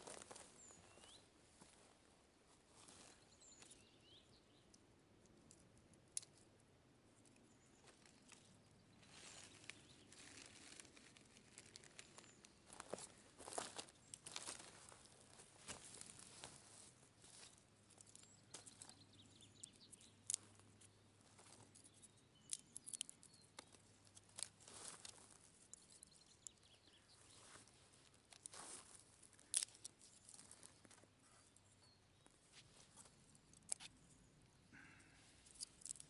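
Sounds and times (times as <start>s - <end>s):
dry twigs snapping: 9.2s - 15.0s, 19.6s - 20.6s, 22.5s - 26.6s, 28.3s - 31.0s, 34.8s - 36.0s.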